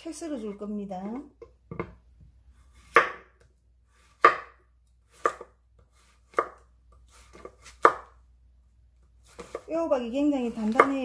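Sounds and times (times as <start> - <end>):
knife slicing zucchini: 2.6 - 8.2, 9.2 - 11.0.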